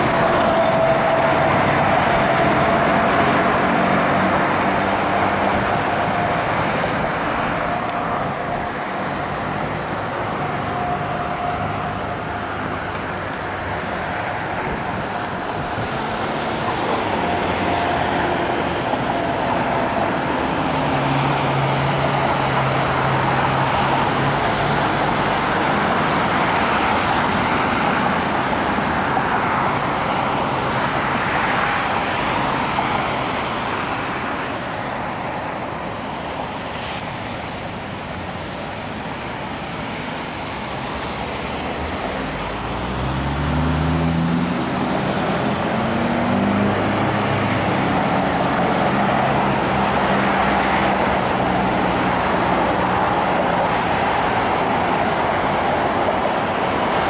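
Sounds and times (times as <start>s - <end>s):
road traffic rushing: 0.0s - 57.0s
vehicle engine pulling away: 42.2s - 51.7s.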